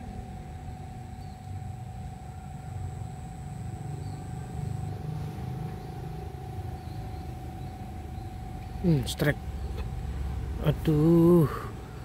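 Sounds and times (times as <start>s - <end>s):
low uneven rumble: 0.0s - 12.0s
thin steady whine: 0.0s - 12.0s.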